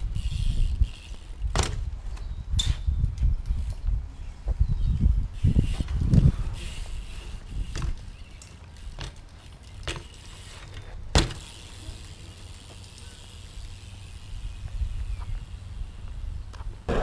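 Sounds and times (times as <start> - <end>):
bike tyres rolling on concrete: 0.0 - 17.0
bike knocking on concrete: 6.8 - 13.5.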